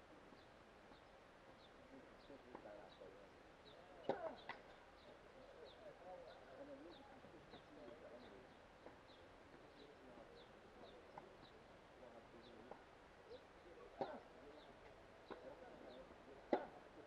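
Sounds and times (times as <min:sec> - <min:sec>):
tennis ball pock: 0:04.1 - 0:04.7.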